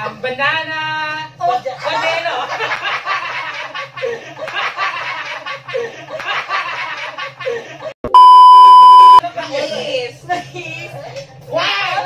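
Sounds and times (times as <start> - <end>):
group of adults laughing: 1.7 - 8.0.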